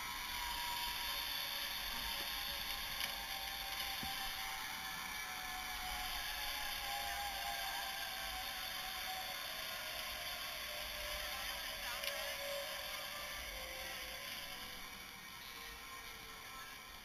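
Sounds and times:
pulleys whirring on steel cable: 0.0s - 17.0s.

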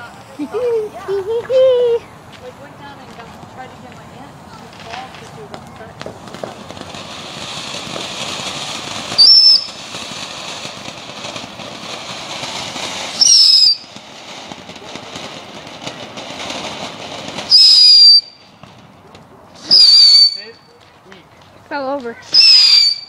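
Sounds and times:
firework spraying sparks hissing: 0.0s - 23.0s
shrill firework whistle: 9.1s - 9.9s, 13.0s - 14.0s, 17.4s - 18.5s, 19.6s - 20.7s, 22.2s - 23.0s.

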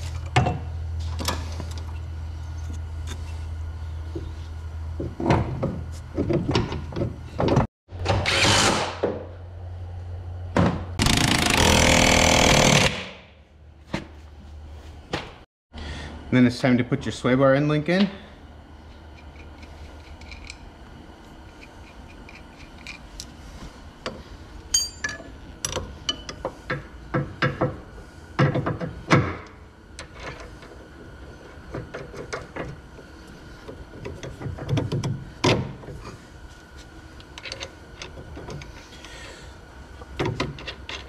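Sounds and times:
tools and metal parts clinking: 19.1s - 20.7s, 21.4s - 23.4s, 24.7s - 26.5s, 37.2s - 39.1s, 40.0s - 41.0s.

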